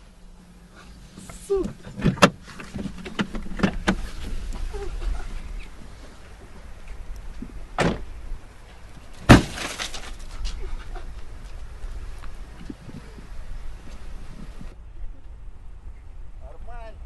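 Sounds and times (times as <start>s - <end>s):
car doors slamming: 1.3s - 4.7s, 7.7s - 8.2s, 9.2s - 10.1s.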